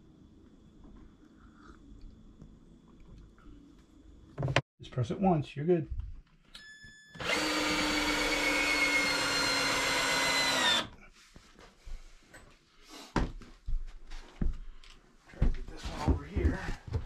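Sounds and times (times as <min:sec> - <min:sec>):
cordless drill driving a screw: 0:07.2 - 0:10.9.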